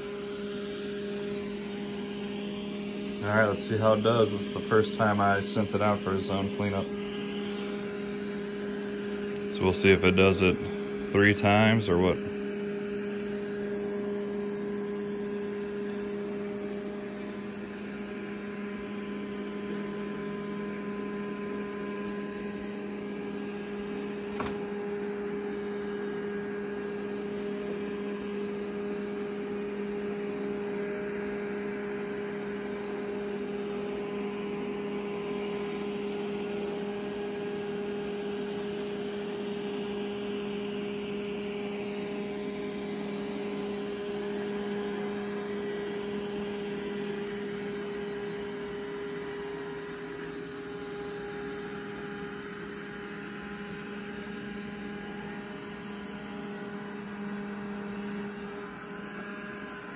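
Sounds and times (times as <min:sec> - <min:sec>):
robot vacuum motor hum: 0:00.0 - 0:59.9
sharp click: 0:24.3 - 0:24.6.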